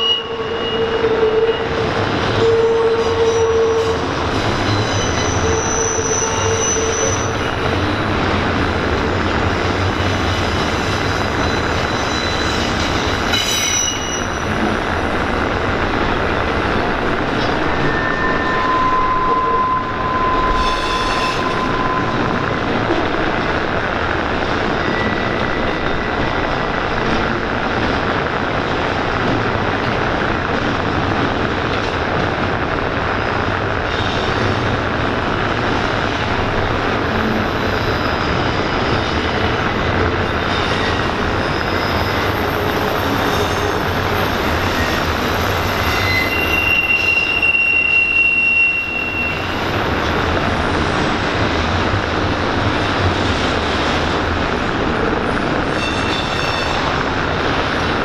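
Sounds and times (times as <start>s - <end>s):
high wheel squeals: 0.0s - 7.8s, 10.0s - 14.6s, 17.5s - 22.8s, 40.2s - 49.9s, 55.6s - 57.0s
freight train rumbling past: 0.0s - 58.0s.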